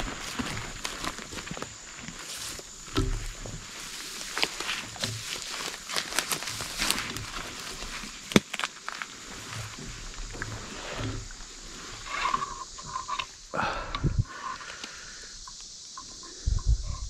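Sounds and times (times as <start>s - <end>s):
footsteps crunching through leaves: 0.0s - 12.0s
twig snapping: 4.0s - 10.5s.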